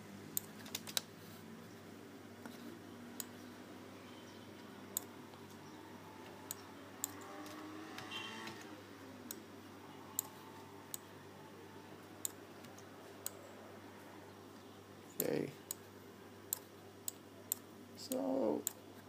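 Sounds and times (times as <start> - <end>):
faint steady hum: 0.0 - 19.0
mouse and keyboard clicks: 0.4 - 1.1, 10.2 - 11.1.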